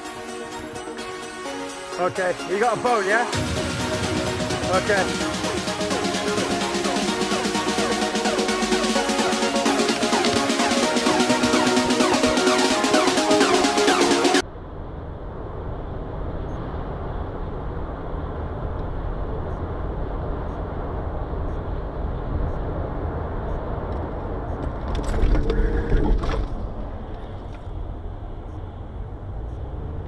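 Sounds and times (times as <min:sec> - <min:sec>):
road and engine noise inside car: 0:14.4 - 0:30.0.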